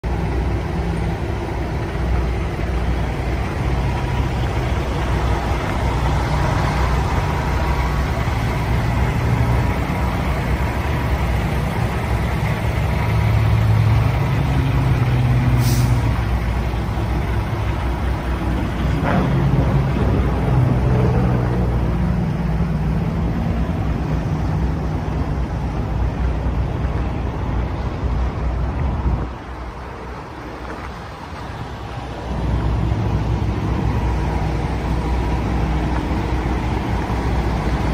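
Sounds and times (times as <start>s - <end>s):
diesel truck engine idling: 0.0s - 37.9s
sharp air hiss: 15.5s - 16.2s.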